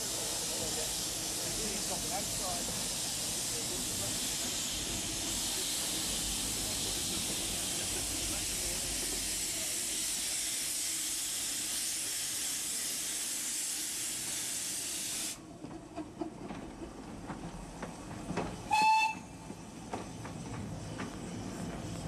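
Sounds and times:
steam locomotive hissing: 0.0s - 15.4s, 17.9s - 22.0s
steam whistle toot: 18.7s - 19.4s.

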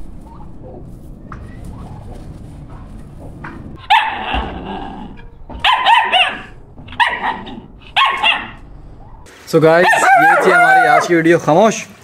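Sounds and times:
dog barking: 3.8s - 4.6s, 5.6s - 9.3s, 9.9s - 11.1s.

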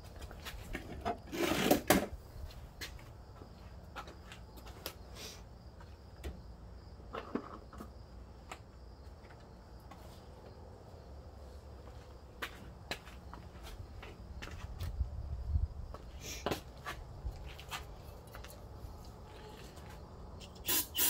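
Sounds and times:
rustling and scraping: 0.2s - 2.6s.

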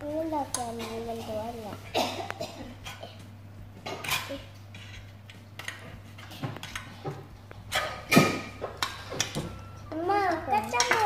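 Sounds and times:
cutlery clinking on steel trays: 3.8s - 11.0s.

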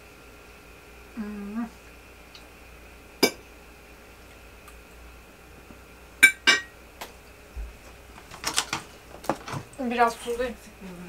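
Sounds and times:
kitchenware clinking: 6.2s - 6.7s.

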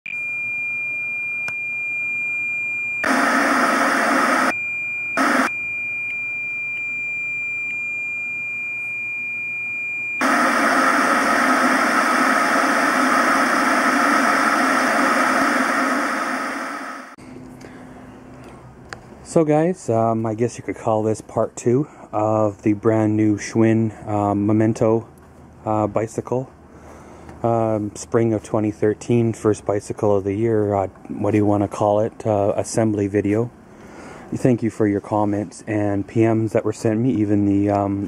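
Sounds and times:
steady high test tone: 0.1s - 17.2s
television static hiss: 3.0s - 4.5s.

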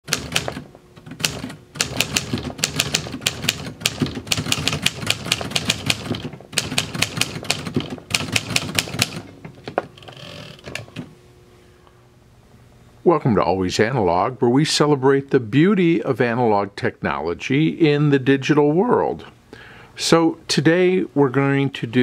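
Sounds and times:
typewriter typebar strikes: 0.1s - 9.3s.

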